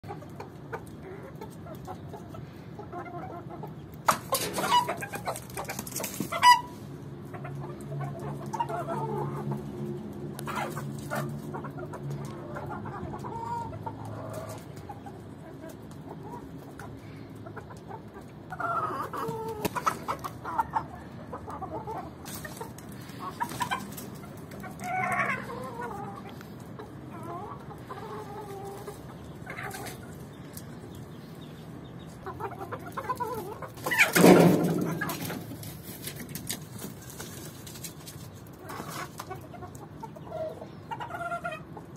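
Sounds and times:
hens and roosters clucking: 0.0 - 41.9.

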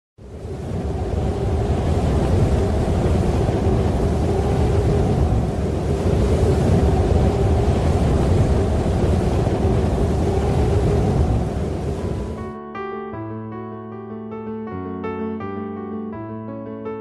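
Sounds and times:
wind rushing: 0.2 - 12.6.

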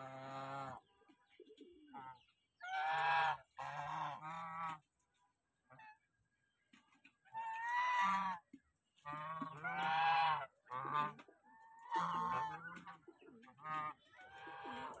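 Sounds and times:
geese honking: 1.9 - 4.8, 7.3 - 15.0.

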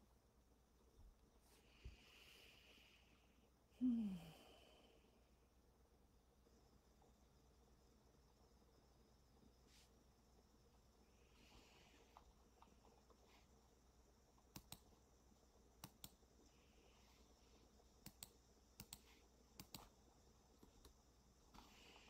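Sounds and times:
faint clicks in pairs: 14.4 - 15.0, 15.8 - 16.2, 18.0 - 20.0.

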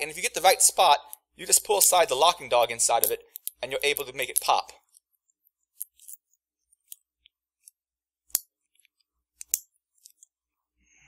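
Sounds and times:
small metallic lock clicks: 3.0 - 4.6, 6.8 - 10.3.

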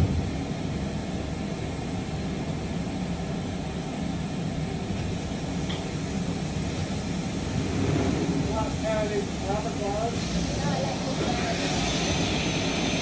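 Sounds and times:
dust extraction running: 4.9 - 13.0.

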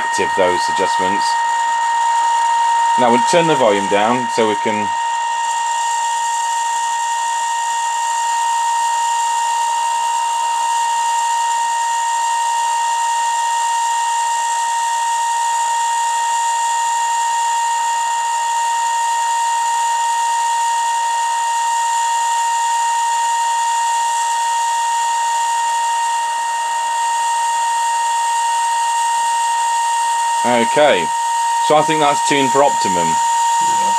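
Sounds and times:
radio test tone with hiss: 0.0 - 7.4, 28.8 - 33.9.

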